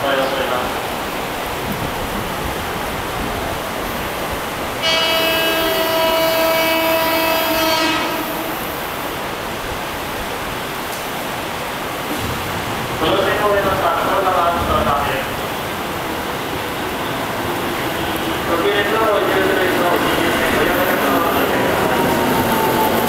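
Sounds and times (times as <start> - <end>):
train rolling: 0.0 - 23.0
train horn tone: 4.8 - 9.0.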